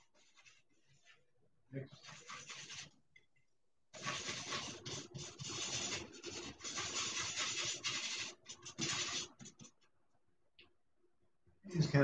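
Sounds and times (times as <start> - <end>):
bristle brush scrubbing paint: 0.0 - 1.3, 1.9 - 3.0, 3.9 - 9.8.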